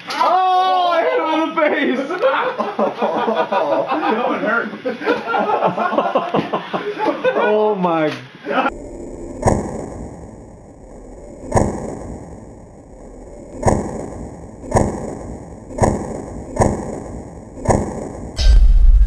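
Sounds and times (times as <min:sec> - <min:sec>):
deep sudden thuds: 0:08.7 - 0:19.0.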